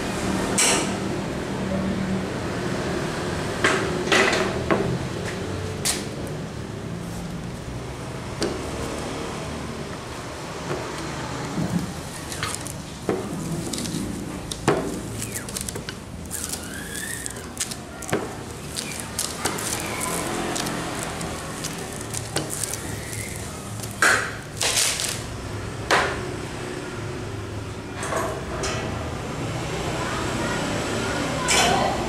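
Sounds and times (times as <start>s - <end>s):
squeegee scraping across silkscreen: 11.8s - 25.2s.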